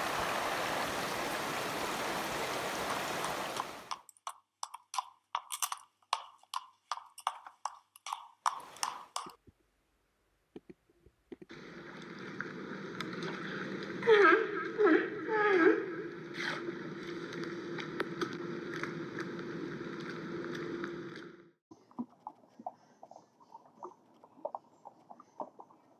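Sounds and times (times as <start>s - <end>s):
donkey wading through water: 0.0s - 3.9s, 21.8s - 25.9s
stream running over rocks: 0.0s - 3.9s
donkey crunching: 3.9s - 9.4s.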